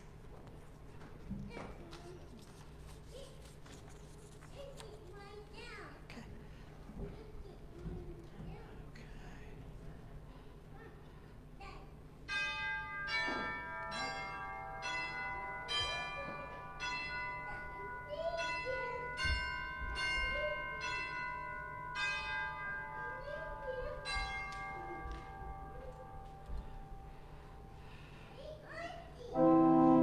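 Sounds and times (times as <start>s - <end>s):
bells chiming: 12.2s - 28.2s.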